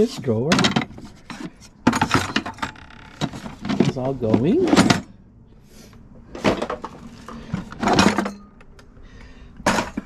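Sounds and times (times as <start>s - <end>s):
kitchen utensils clattering: 0.0s - 5.1s, 6.4s - 8.6s.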